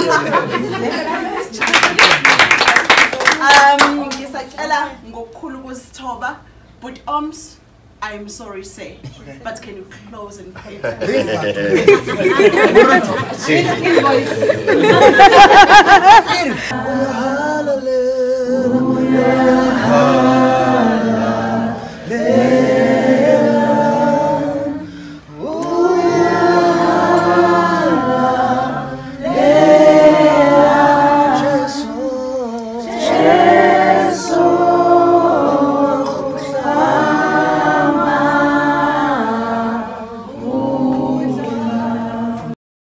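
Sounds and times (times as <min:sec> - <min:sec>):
group singing unaccompanied: 0:11.7 - 0:42.6.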